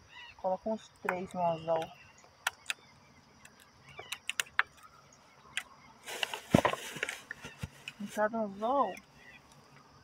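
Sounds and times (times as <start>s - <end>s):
rustle with knocks: 5.6s - 8.4s.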